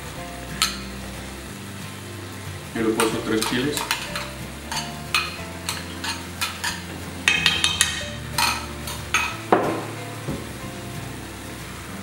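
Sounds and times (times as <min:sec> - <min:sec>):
utensil stirring in frying pan: 0:00.0 - 0:12.0
metal clinks on pan: 0:03.0 - 0:09.4.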